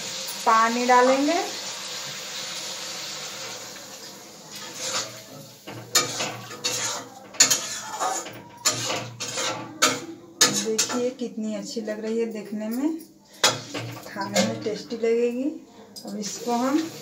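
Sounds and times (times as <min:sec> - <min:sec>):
metal spatula scraping a pan: 0:04.4 - 0:11.3, 0:13.4 - 0:15.0, 0:16.1 - 0:17.0.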